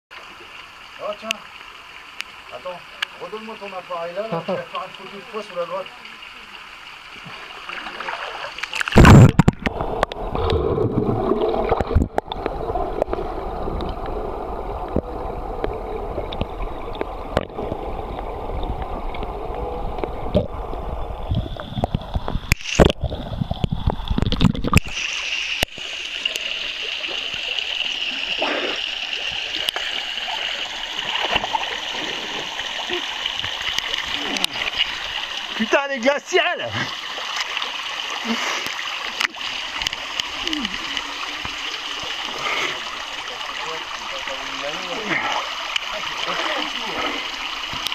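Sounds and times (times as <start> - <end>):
waterfall drips and trickles: 0.1 - 47.9
muffled underwater rumbling: 8.9 - 24.8.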